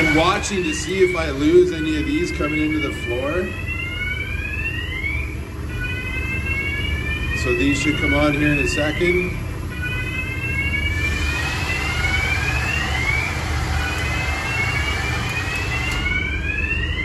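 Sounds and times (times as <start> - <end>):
high gliding whine: 0.0 - 3.6, 10.4 - 17.0
low machinery rumble: 9.4 - 17.0.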